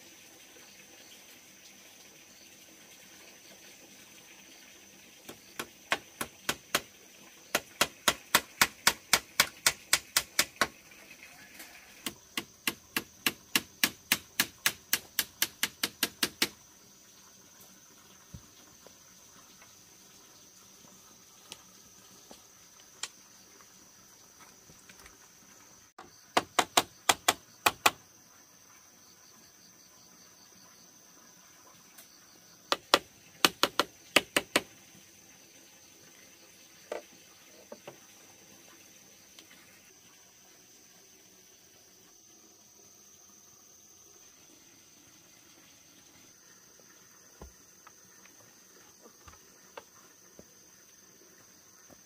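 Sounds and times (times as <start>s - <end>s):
hammer tapping nails into bamboo: 5.3s - 6.9s, 7.5s - 10.8s, 12.0s - 16.6s, 26.4s - 28.0s, 32.7s - 34.7s.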